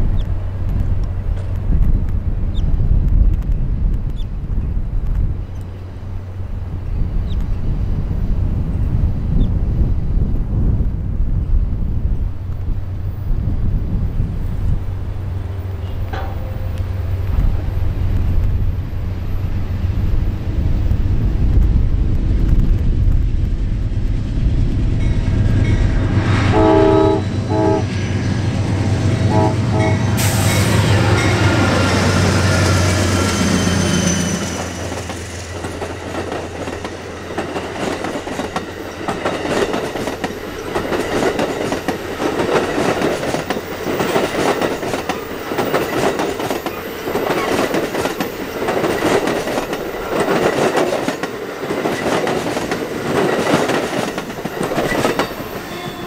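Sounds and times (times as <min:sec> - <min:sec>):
diesel locomotive engines rumbling: 0:00.0 - 0:56.0
train air horn: 0:15.8 - 0:16.8, 0:26.3 - 0:28.0, 0:29.2 - 0:34.6, 0:55.1 - 0:56.0
train wheels clacking on rails: 0:28.7 - 0:56.0.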